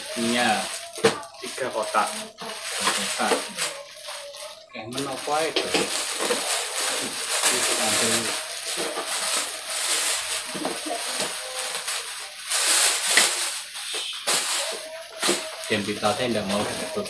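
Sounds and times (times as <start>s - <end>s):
plastic bags crinkling: 0.0s - 17.0s.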